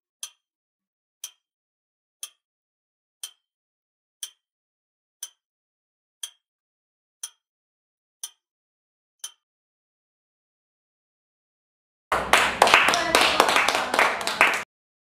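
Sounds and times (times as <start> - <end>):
clock ticking: 0.2 - 0.4, 1.2 - 1.4, 2.2 - 2.4, 3.2 - 3.4, 4.2 - 4.4, 5.2 - 5.4, 6.2 - 6.4, 7.2 - 7.4, 8.2 - 8.4, 9.2 - 9.4.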